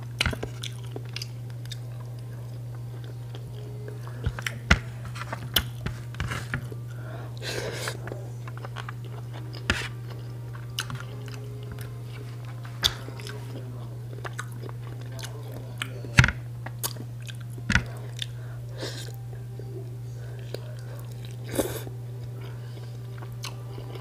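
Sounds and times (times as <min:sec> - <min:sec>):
person chewing food: 0:00.0 - 0:24.0
steady low hum: 0:00.0 - 0:24.0.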